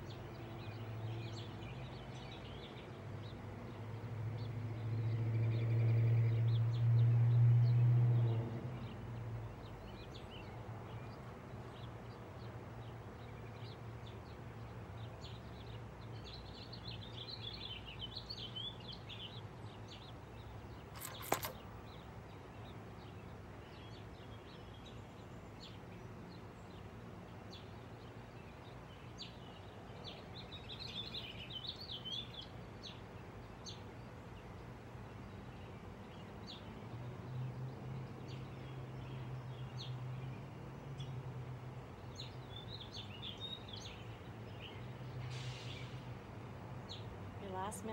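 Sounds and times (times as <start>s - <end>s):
small birds chirping and singing: 0.0s - 47.9s
sharp click: 20.9s - 21.7s.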